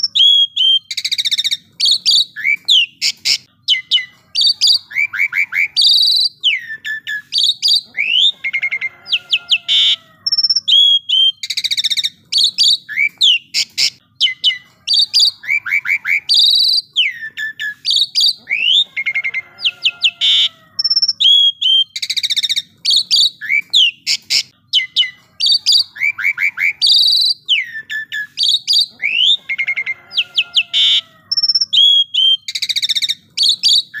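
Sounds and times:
starling singing: 0.0s - 34.0s.

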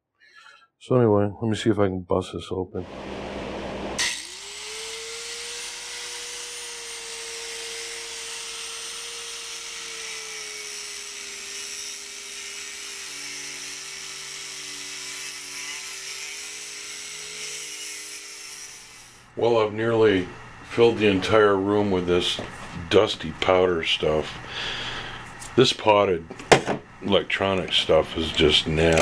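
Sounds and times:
angle grinder cutting: 2.8s - 19.4s, 28.1s - 29.0s.

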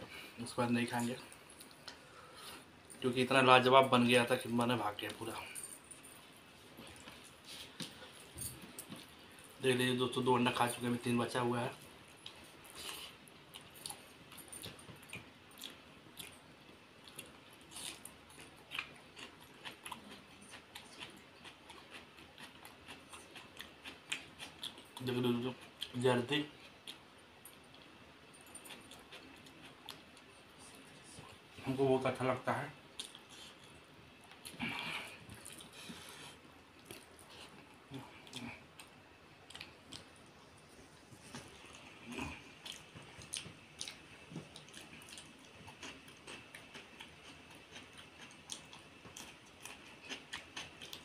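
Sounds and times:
person chewing: 12.1s - 26.0s, 28.5s - 31.4s, 32.9s - 40.2s, 41.0s - 51.0s.

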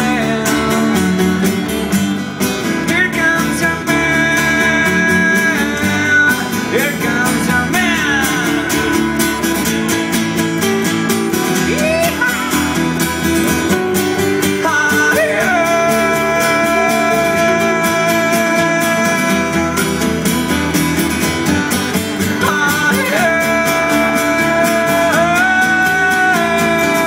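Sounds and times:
acoustic and electric guitars: 0.0s - 27.0s
upright double bass: 0.0s - 27.0s.

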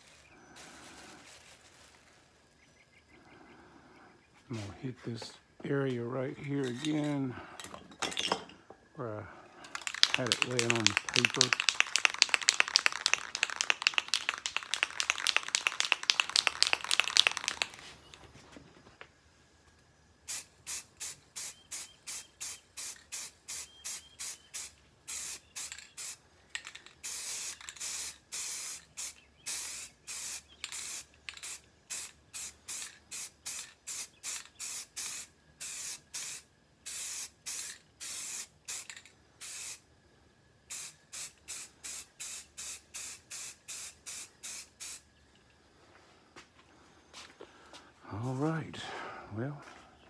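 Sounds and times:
aerosol spray paint bursts: 9.6s - 18.1s, 20.2s - 39.8s, 40.7s - 45.0s.

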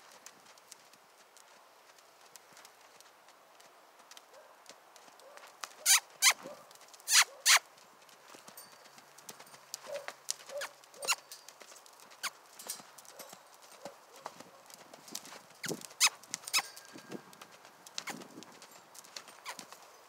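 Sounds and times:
horse hooves on soft dirt: 0.0s - 20.0s.

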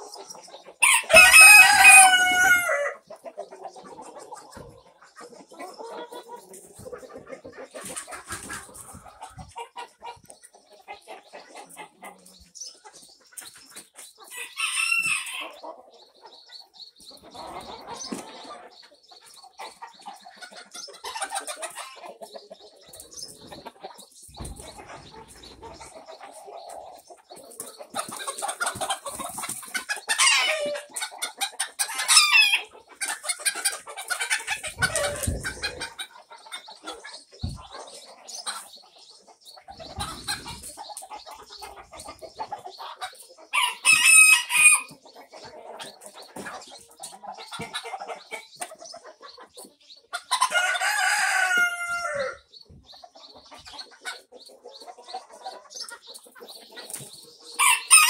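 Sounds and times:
chickens clucking: 0.0s - 58.0s
roosters crowing: 0.8s - 3.0s, 14.3s - 15.6s, 30.1s - 30.9s, 31.9s - 32.7s, 34.3s - 36.0s, 43.5s - 44.9s, 50.4s - 52.4s, 57.6s - 58.0s.

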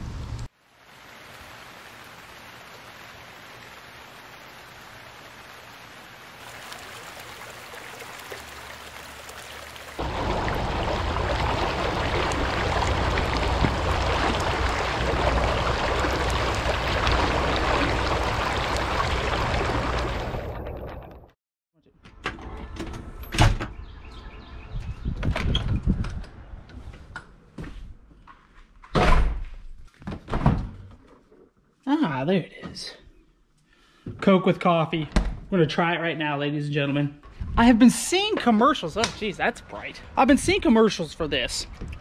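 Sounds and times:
creek water rushing over rocks: 0.9s - 21.0s.

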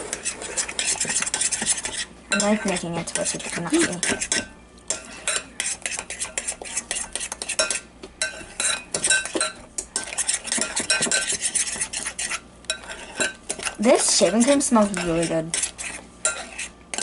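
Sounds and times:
spoon scraping glass bowl: 0.0s - 17.0s.

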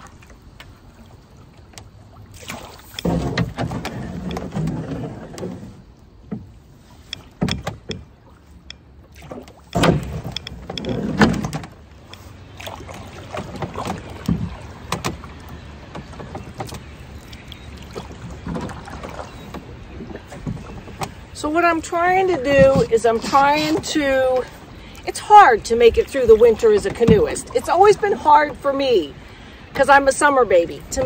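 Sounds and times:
rush of water: 0.0s - 31.0s
water swishing and splashing: 0.0s - 31.0s.

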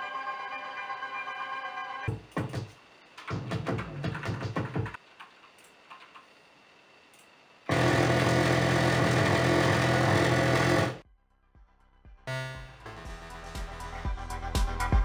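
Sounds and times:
faint clicks: 5.2s - 6.3s
synthesizer held chord: 12.3s - 15.0s.

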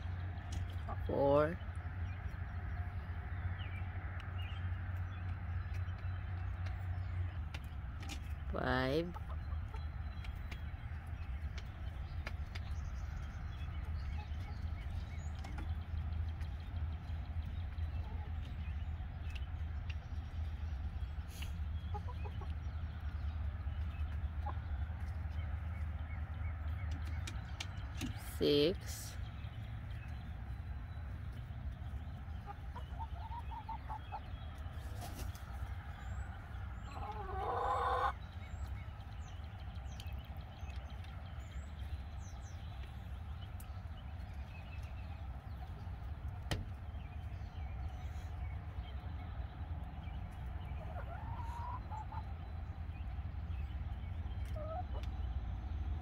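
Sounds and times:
hens clucking: 0.0s - 56.0s.

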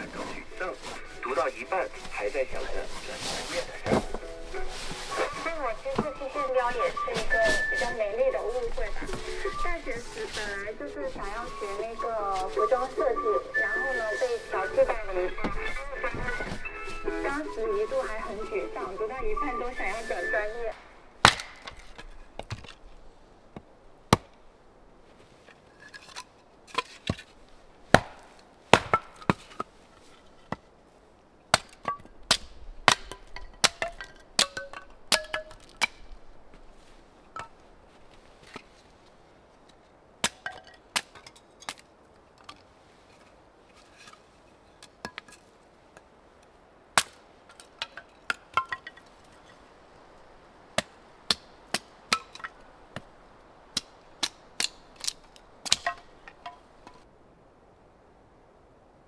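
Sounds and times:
axe chopping wood: 20.8s - 22.8s, 24.1s - 24.4s, 27.9s - 29.7s, 31.5s - 36.2s, 40.2s - 41.8s, 47.0s - 49.0s, 50.8s - 53.1s, 53.7s - 57.0s.

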